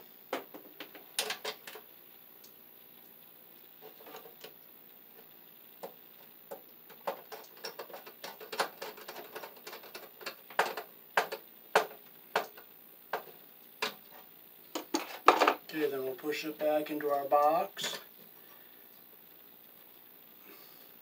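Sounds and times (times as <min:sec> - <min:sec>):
clicks and taps in metal box: 0:05.8 - 0:14.0.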